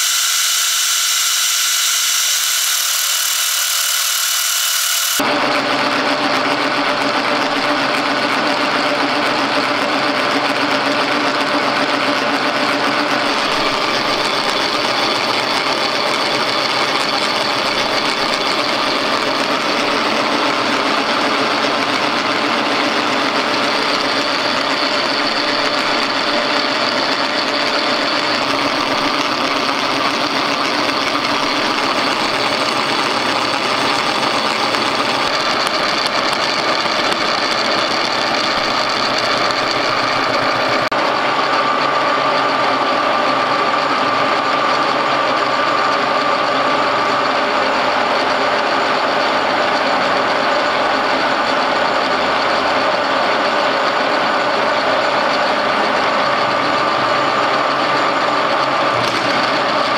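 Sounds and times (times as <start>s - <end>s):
milling machine cutting metal: 0.0s - 5.3s, 6.6s - 59.9s
high mechanical whine: 0.0s - 59.9s.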